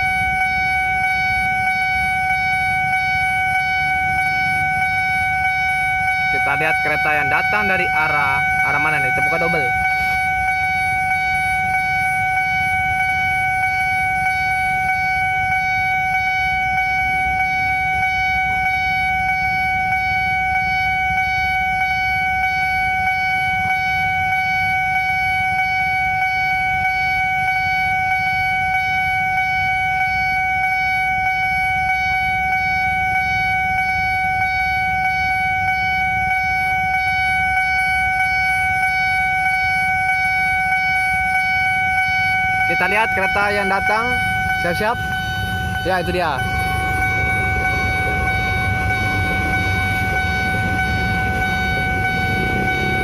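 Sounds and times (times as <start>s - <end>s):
level crossing alarm tone: 0.0s - 53.0s
low rumble: 43.3s - 53.0s.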